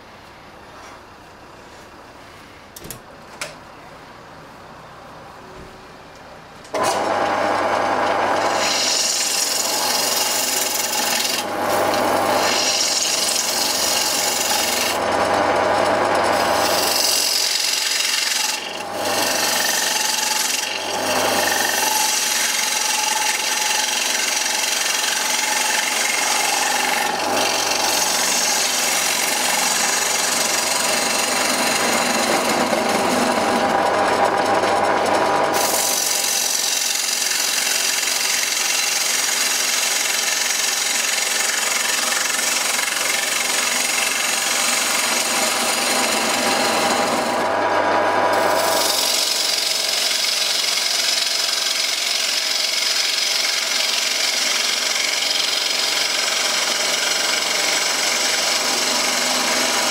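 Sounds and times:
low hum of running lathe: 6.7 - 59.9
gouge scraping wood on lathe: 6.8 - 59.9.

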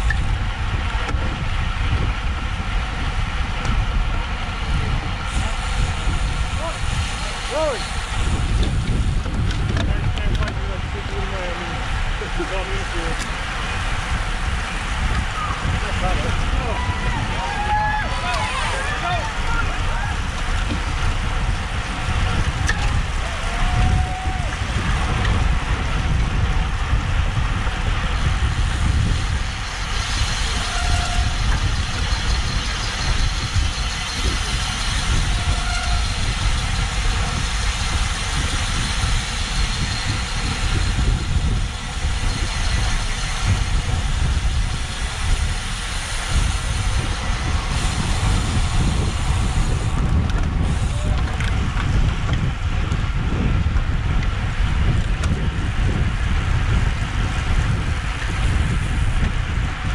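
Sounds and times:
road hiss: 0.0 - 59.9
wind buffeting microphone: 0.0 - 59.9.

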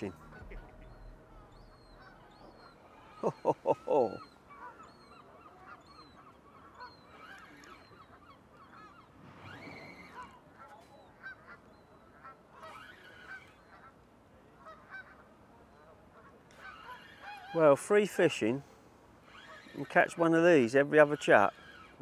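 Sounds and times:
geese honking: 0.0 - 14.0.

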